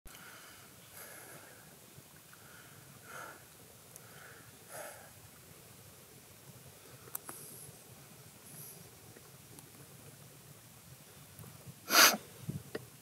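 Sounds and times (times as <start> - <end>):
man breathing softly: 0.1 - 5.2
faint hiss: 0.1 - 13.0.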